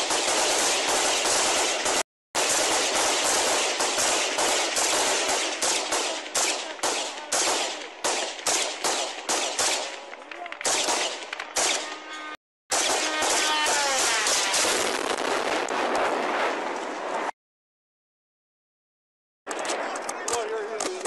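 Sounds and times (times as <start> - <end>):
assault rifles firing: 0.0 - 12.0, 12.7 - 16.3.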